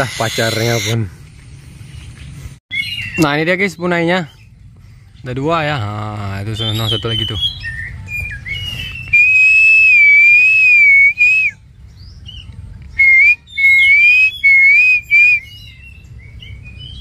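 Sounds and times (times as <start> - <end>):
pigeon whistling: 0.0 - 1.0, 6.5 - 11.6, 12.2 - 17.0.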